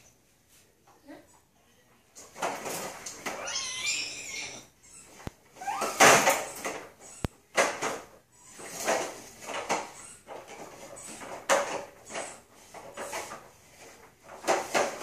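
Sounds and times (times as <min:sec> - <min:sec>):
plastic push toy rattling on tile: 0:05.6 - 0:15.0.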